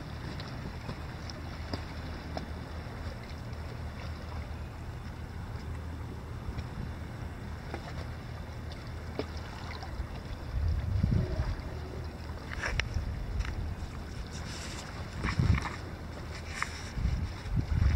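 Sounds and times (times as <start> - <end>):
sea lapping against rocks: 0.0 - 5.7, 6.3 - 17.9
wind buffeting microphone: 10.0 - 16.1, 16.8 - 17.9.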